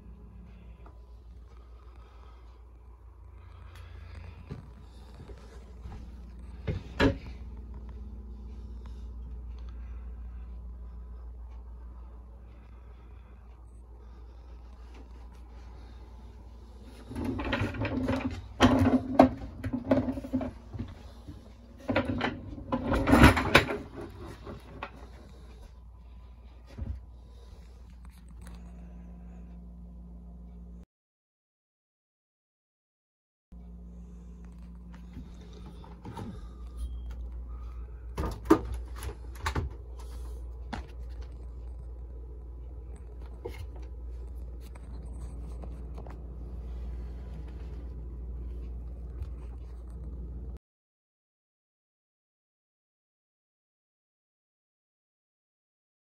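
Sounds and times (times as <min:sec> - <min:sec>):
steady low hum: 0:00.0 - 0:30.8, 0:33.6 - 0:50.6
dolly rumbling and knocking: 0:16.8 - 0:25.4
refrigerator door opening: 0:21.8 - 0:25.0, 0:38.1 - 0:41.0.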